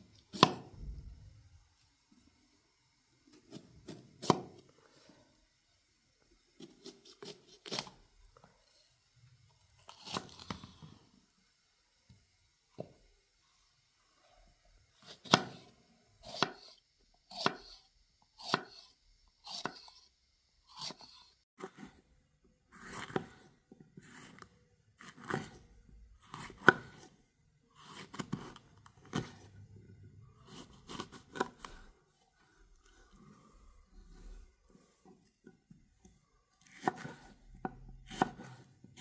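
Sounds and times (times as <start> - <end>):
knife slicing pepper: 0.3 - 0.7, 6.6 - 8.0, 9.9 - 10.8, 15.0 - 17.8, 18.4 - 20.1, 20.7 - 22.0, 22.7 - 25.6, 26.2 - 27.1, 27.8 - 29.5, 30.4 - 31.9, 36.6 - 37.4, 38.0 - 39.0.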